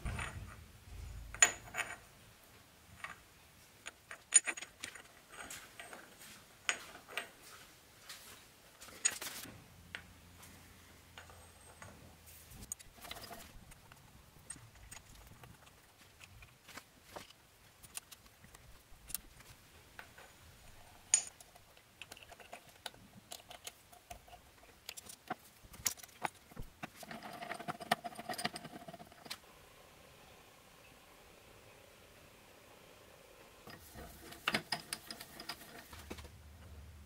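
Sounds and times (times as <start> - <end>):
metal clicks and clinks: 21.1 - 23.8, 33.6 - 36.0
metal rubbing: 33.6 - 36.3.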